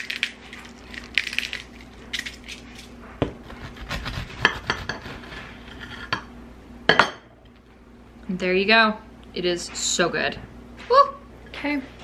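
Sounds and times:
pepper grinder grinding: 0.0 - 5.4
bread knife sawing through toast: 3.4 - 5.8.

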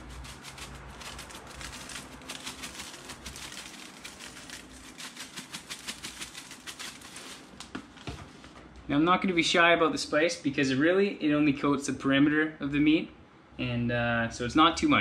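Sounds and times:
spice rattling in plastic shaker: 0.0 - 7.7.

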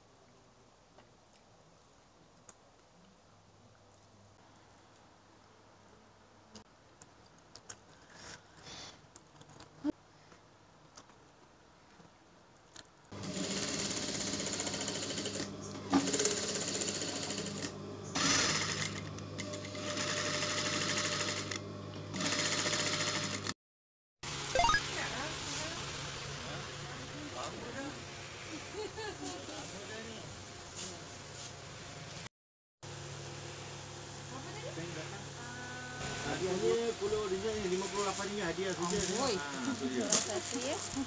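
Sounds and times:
faint clicks and rustles: 6.5 - 13.1
sewing machine running: 13.2 - 18.9, 19.7 - 23.5.

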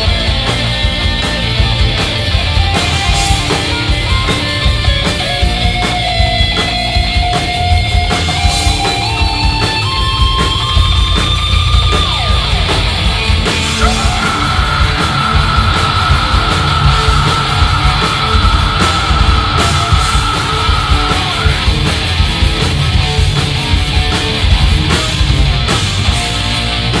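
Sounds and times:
live rock band playing: 0.0 - 27.0
lead guitar held notes: 13.6 - 23.8.

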